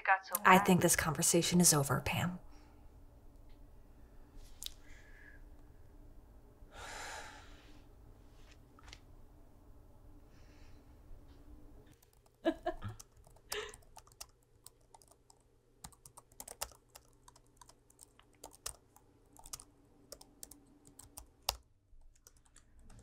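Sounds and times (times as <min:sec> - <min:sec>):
laptop keyboard typing: 0:11.9 - 0:12.4, 0:13.0 - 0:23.0.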